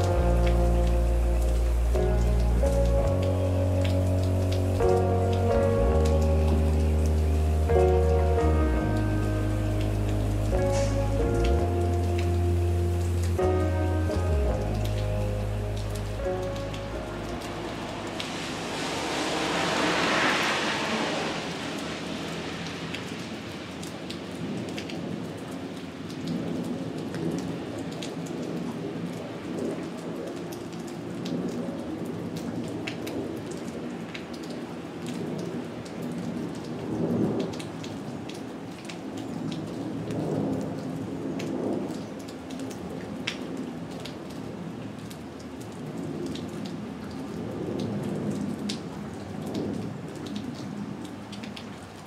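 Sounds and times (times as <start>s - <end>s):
thunder rumbling: 0.0s - 25.3s
steady rain: 0.0s - 52.0s.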